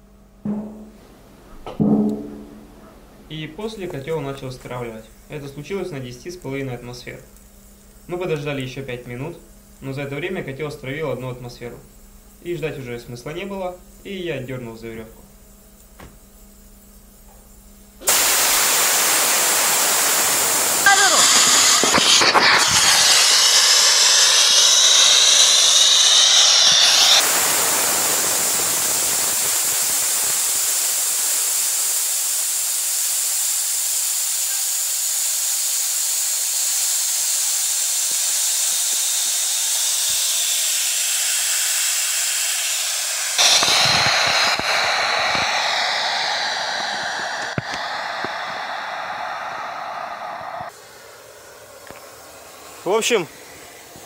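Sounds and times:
steam hissing from valve: 0:18.0 - 0:54.0.

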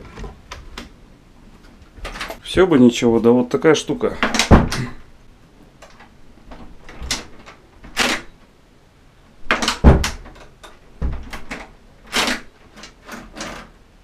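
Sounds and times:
door latch clicking: 0:09.5 - 0:10.5
door knob rattling: 0:09.5 - 0:13.7.

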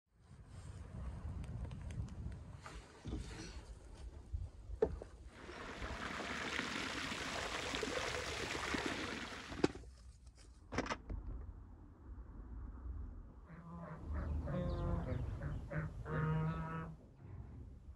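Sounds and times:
water pouring into metal colander: 0:05.3 - 0:09.8.

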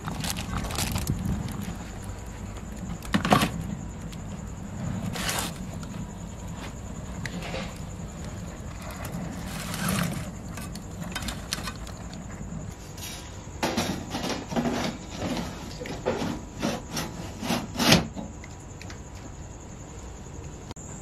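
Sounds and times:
rough scraping strokes: 0:04.7 - 0:05.8, 0:08.8 - 0:11.9.

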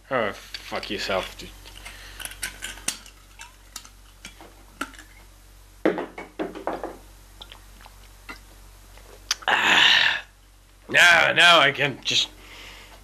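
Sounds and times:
person gulping: 0:07.4 - 0:10.3
breathy exhale: 0:09.5 - 0:10.3, 0:12.4 - 0:13.0.

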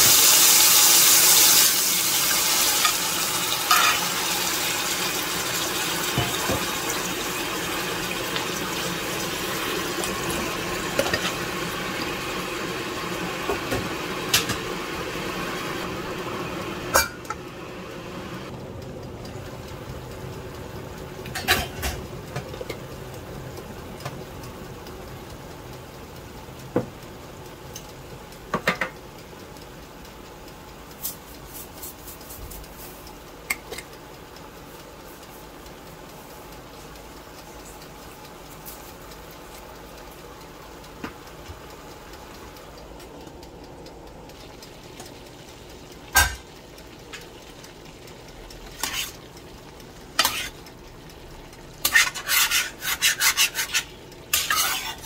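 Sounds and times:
stirring vegetables: 0:45.9 - 0:55.0.

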